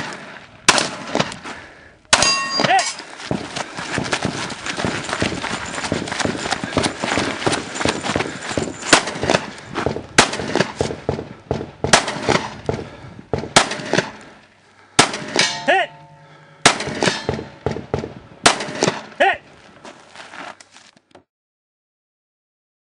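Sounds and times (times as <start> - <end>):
gunshots: 0.0 - 1.4, 2.1 - 19.2.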